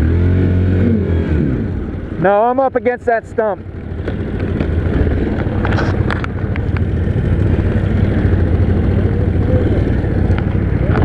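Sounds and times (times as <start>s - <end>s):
atv engine running: 0.0s - 11.0s.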